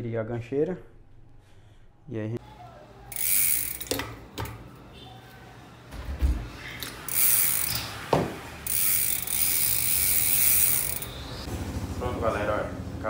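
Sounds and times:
bicycle hub ratchet clicking: 3.1 - 4.5, 6.8 - 8.0, 8.6 - 11.5.

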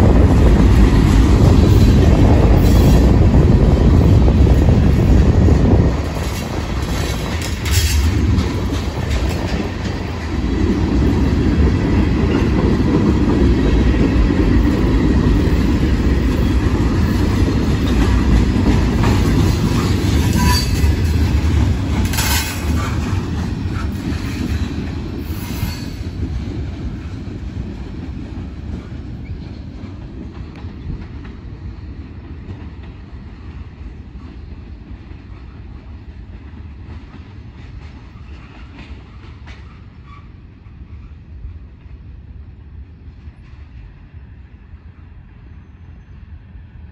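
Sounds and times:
train rumbling: 0.0 - 46.9
train wheels squealing on rails: 1.4 - 3.3, 6.1 - 10.0, 14.6 - 27.2, 28.6 - 32.2, 33.5 - 36.3, 37.0 - 41.7, 43.2 - 46.9.

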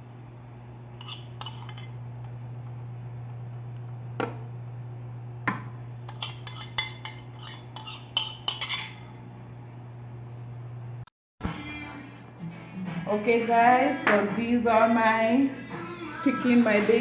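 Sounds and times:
metal spoon clinking and scraping: 1.0 - 2.0, 6.1 - 9.1.

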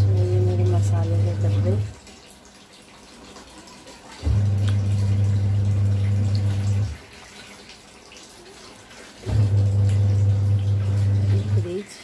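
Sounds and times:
washing machine motor humming: 0.0 - 2.2, 4.0 - 8.0, 8.8 - 12.0.

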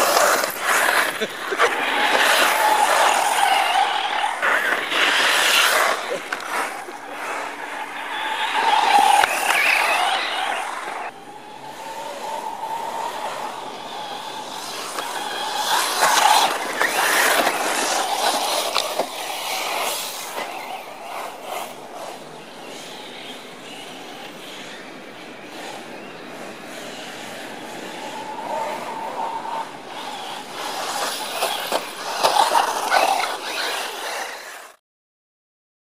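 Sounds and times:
radio-controlled car motor whining: 0.0 - 34.8.

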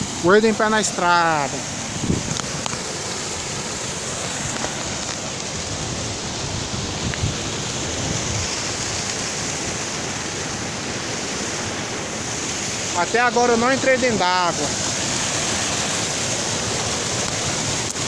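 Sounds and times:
waterfall rushing into pool: 0.0 - 18.0.

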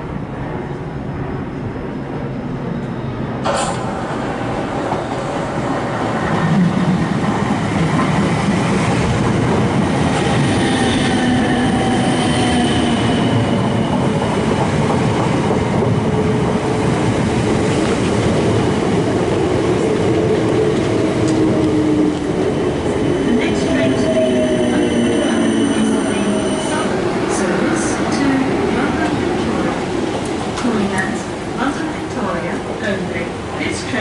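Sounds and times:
train wheels on rails: 2.7 - 34.0.

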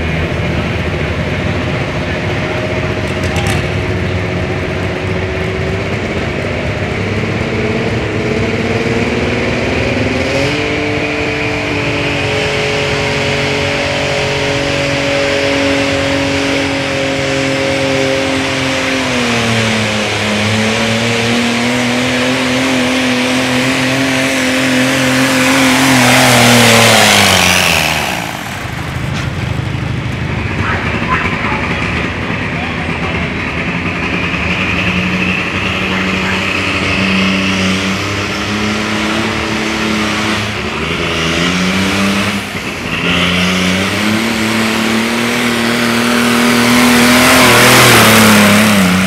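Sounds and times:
loud rush of noise: 0.0 - 49.0
tractor diesel engine under load: 0.0 - 49.0.

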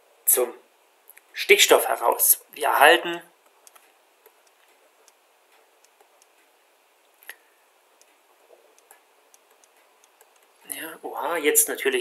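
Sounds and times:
stylus tapping on a tablet: 3.4 - 6.4, 8.0 - 10.6.

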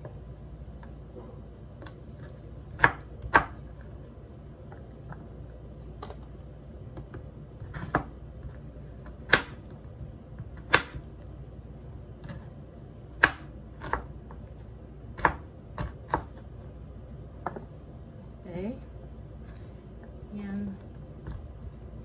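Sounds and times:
cleaver chopping on plastic board: 10.6 - 11.0.

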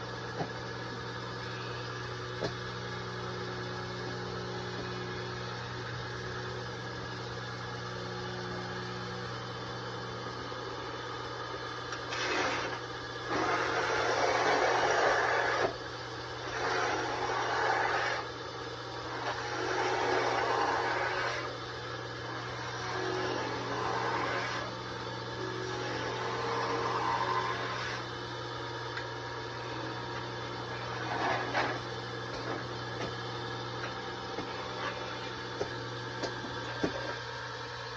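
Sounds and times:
wood lathe motor hum: 0.0 - 37.9
turning tool scraping wood: 11.9 - 15.8, 16.4 - 18.3, 19.0 - 21.5, 22.3 - 24.8, 25.6 - 28.1, 30.7 - 33.1, 34.4 - 35.7.

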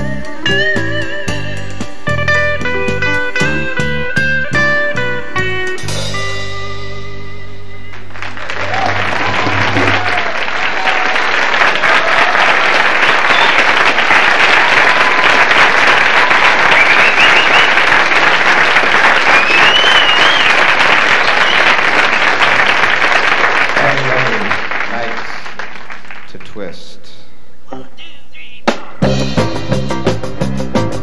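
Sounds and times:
audience applauding: 7.9 - 26.6
wavering whistles: 13.2 - 13.8, 16.6 - 17.8, 19.2 - 22.4.

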